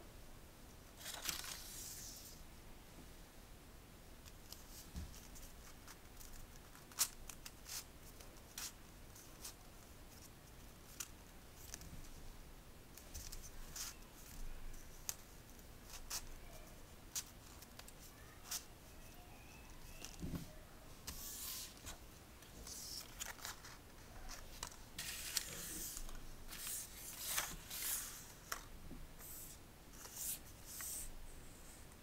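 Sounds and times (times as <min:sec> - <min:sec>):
paper rustling: 0:01.0 - 0:02.3, 0:21.0 - 0:31.1.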